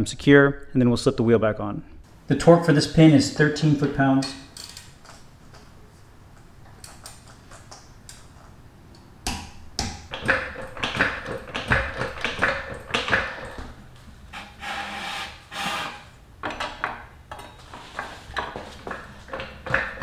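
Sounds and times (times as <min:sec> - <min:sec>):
torque wrench ratchet clicking: 0:04.6 - 0:04.9.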